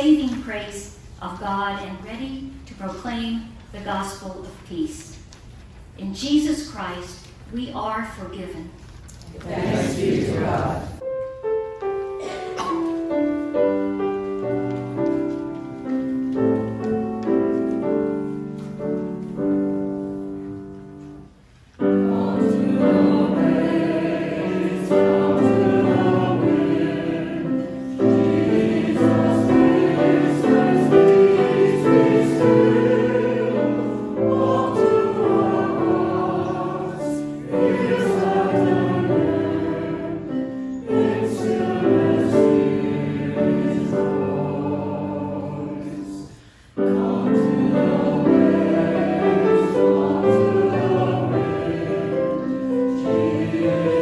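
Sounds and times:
choir and congregation singing: 9.4s - 11.0s, 12.2s - 54.0s
keyboard accompaniment: 11.0s - 46.2s, 46.8s - 54.0s.

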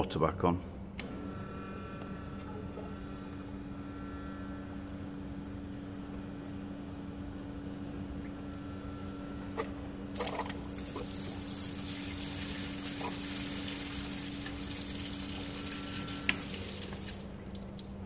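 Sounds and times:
steady machine hum: 0.0s - 18.0s
water gushing and splashing: 9.6s - 18.0s.

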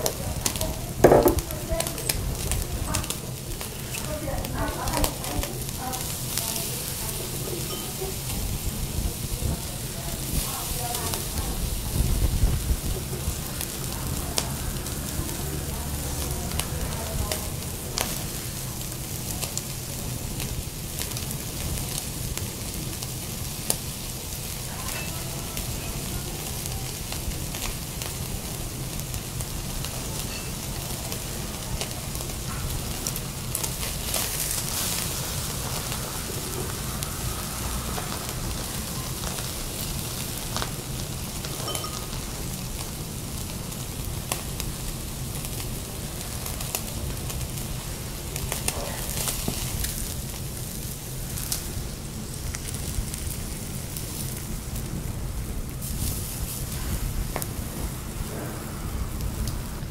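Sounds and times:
steak sizzling on charcoal grill: 0.0s - 59.9s
low thud: 1.0s - 1.5s.

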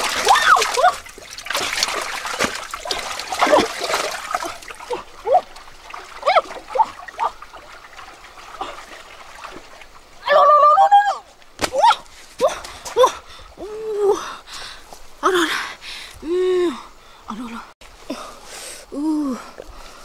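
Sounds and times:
hands splashing in muddy water: 0.0s - 10.0s
wet mud squelching: 0.0s - 10.1s.

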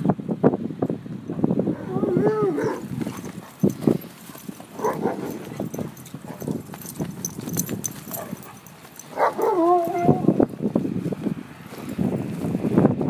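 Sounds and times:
paws scuffling on turf: 2.6s - 12.8s.

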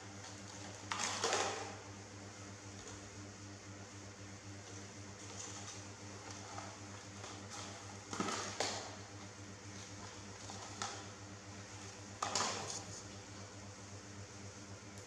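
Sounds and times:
steady low hum: 0.0s - 15.0s
plastic cup clattering on tile: 0.9s - 1.7s.

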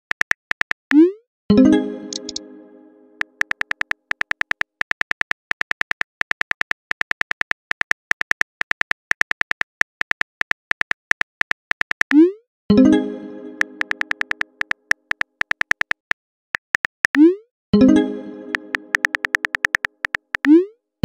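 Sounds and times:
chime-like tone: 1.5s - 3.2s
phone keyboard tap clicks: 3.2s - 12.1s, 13.8s - 17.2s, 18.5s - 20.5s.

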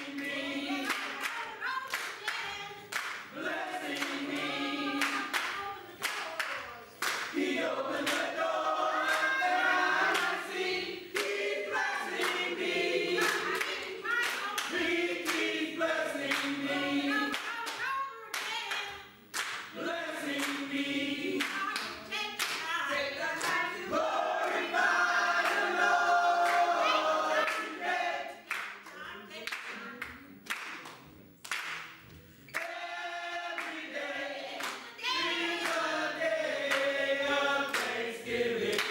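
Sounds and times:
church choir singing: 0.0s - 1.8s, 3.0s - 5.6s, 7.1s - 17.4s, 19.7s - 21.8s, 23.0s - 28.5s, 32.5s - 38.9s
hand clapping: 0.0s - 4.3s, 4.9s - 8.3s, 11.1s - 11.5s, 12.1s - 12.5s, 13.2s - 15.6s, 16.2s - 16.6s, 17.3s - 20.7s, 28.4s - 32.8s, 34.6s - 34.9s, 35.6s - 35.9s, 37.7s - 38.0s, 38.6s - 38.9s.

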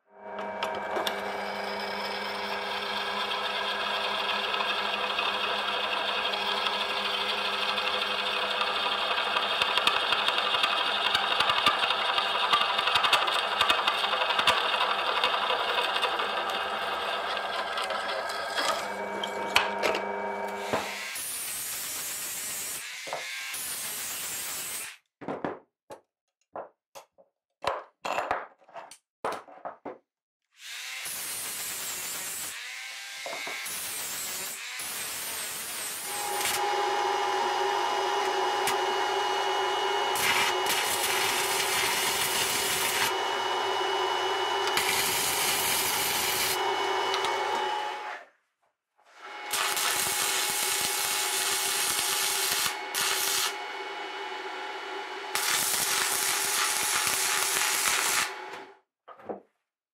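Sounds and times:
drill press boring metal: 0.4s - 21.2s, 35.2s - 48.1s, 49.4s - 58.6s
electric arc welding buzz: 33.7s - 43.2s, 44.7s - 46.6s, 49.3s - 53.7s, 54.9s - 58.5s.

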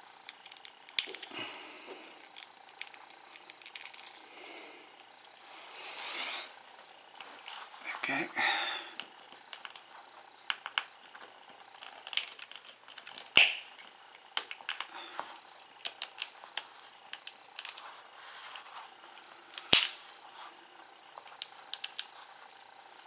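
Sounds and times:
small plastic clicks: 0.2s - 1.4s, 2.2s - 4.2s, 10.5s - 11.0s, 11.8s - 15.0s, 15.8s - 17.8s, 21.2s - 22.2s.

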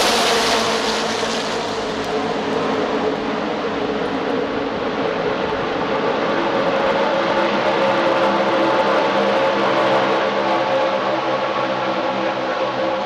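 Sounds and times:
race cars rushing past: 0.0s - 4.6s
multi-engine drone: 0.0s - 13.0s.

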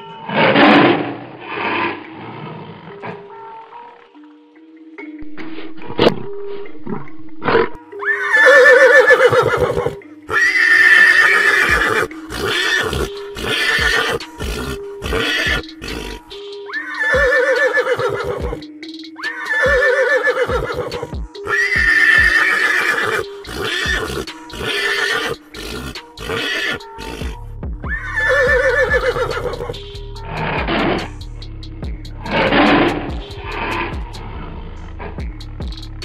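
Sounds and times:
horses whinnying: 7.0s - 18.6s, 19.2s - 31.1s, 32.3s - 34.5s.

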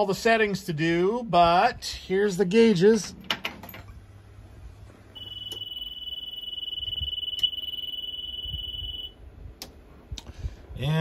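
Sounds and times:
high-pitched warning beep: 5.2s - 9.2s.

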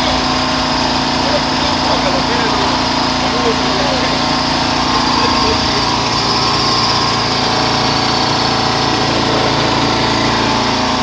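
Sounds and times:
grain mill engine droning: 0.0s - 11.0s.

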